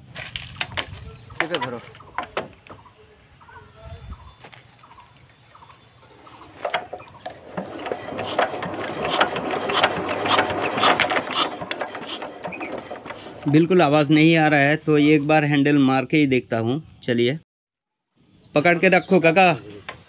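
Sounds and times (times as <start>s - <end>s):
engine hand crank rasping clicks: 6.6s - 13.7s.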